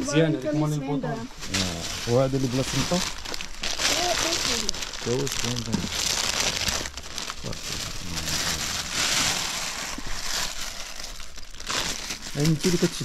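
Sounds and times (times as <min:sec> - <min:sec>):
material rustling and crinkling: 0:01.4 - 0:13.0.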